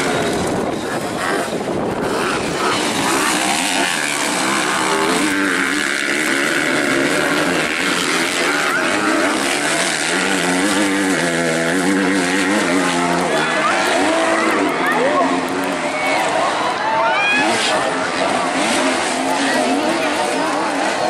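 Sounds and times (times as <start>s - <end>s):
motocross bike engines racing: 0.0s - 21.0s.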